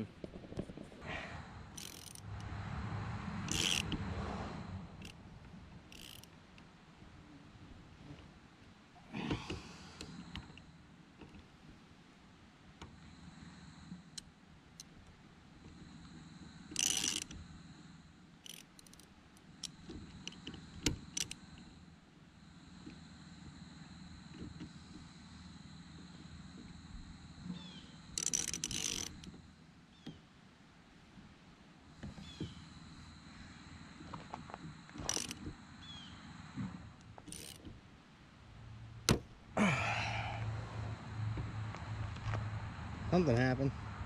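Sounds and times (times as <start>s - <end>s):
ratchet clicking: 1.7s - 2.5s, 3.4s - 4.0s, 5.9s - 6.3s, 16.7s - 17.4s, 18.4s - 21.4s, 28.1s - 29.3s, 35.0s - 35.5s, 37.3s - 37.7s
rush of noise: 39.6s - 44.0s.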